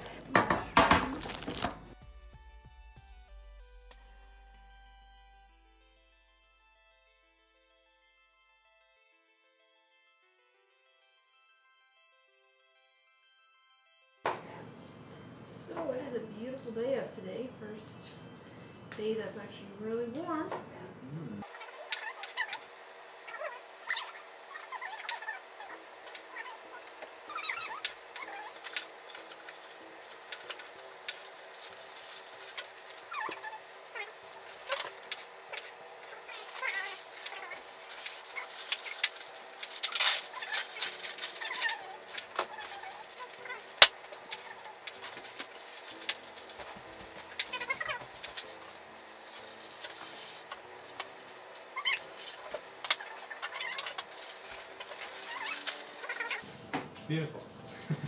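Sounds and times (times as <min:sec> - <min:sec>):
packaging rustling: 0:00.0 - 0:02.0, 0:24.0 - 0:56.4
parchment paper crinkling: 0:00.0 - 0:02.0, 0:23.4 - 0:56.4.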